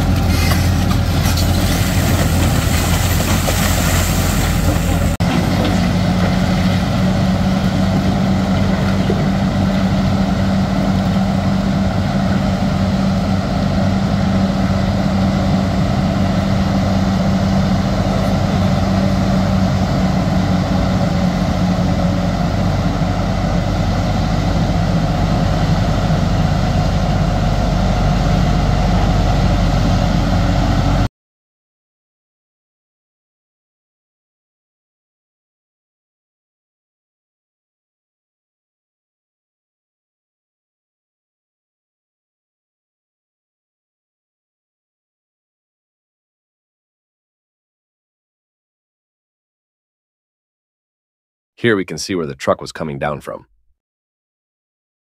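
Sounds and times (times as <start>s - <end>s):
excavator diesel engine drone: 0.0s - 31.1s.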